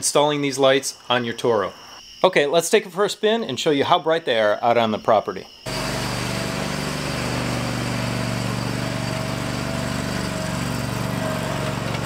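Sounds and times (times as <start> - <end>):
mower engine running: 5.7 - 12.0.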